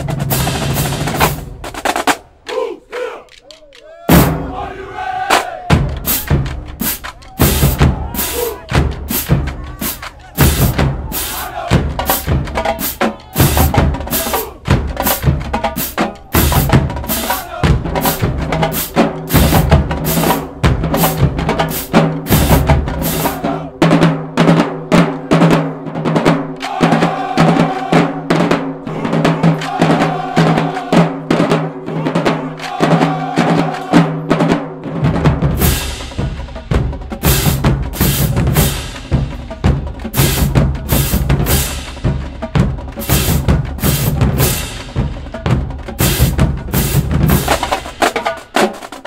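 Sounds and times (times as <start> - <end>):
bass drums: 0.0 - 2.4, 4.0 - 4.7, 5.4 - 25.1, 34.8 - 49.0
snare drums: 0.0 - 49.0
tenor drums: 0.0 - 49.0.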